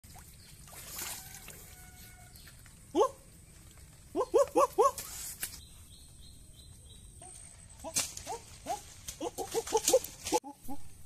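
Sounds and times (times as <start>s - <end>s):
stream trickling: 0.0s - 5.4s
animal calls: 4.1s - 5.2s, 7.2s - 10.9s.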